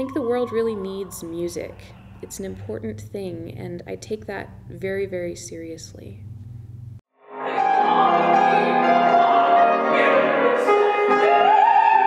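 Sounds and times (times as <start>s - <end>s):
piano accompaniment: 7.2s - 12.0s
soprano singing opera: 7.6s - 12.0s.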